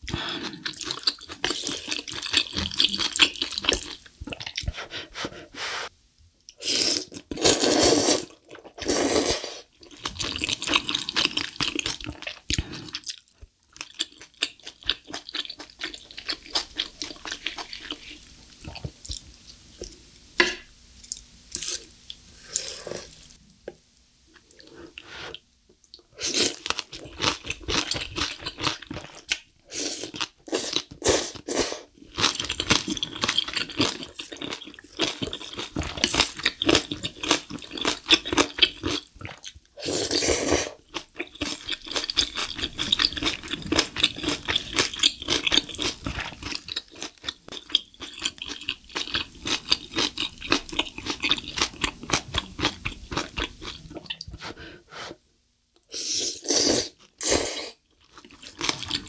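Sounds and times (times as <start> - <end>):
slurping noodles: 6.6 - 9.7, 39.8 - 40.8, 55.9 - 59.0
wet chewing: 40.4 - 54.3
crunching food: 40.8 - 54.2, 58.0 - 59.0.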